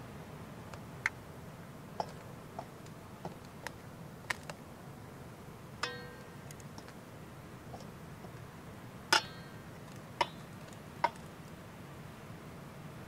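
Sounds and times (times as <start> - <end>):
metal tongs tapping steel bowl: 5.8 - 6.3, 9.1 - 9.5.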